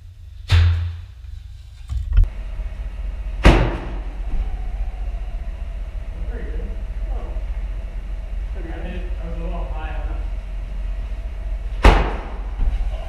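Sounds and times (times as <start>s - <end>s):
steady low rumble: 0.0s - 13.0s
low boom: 2.0s - 13.0s
vortex cannon thumps: 3.4s - 4.4s, 11.3s - 13.0s.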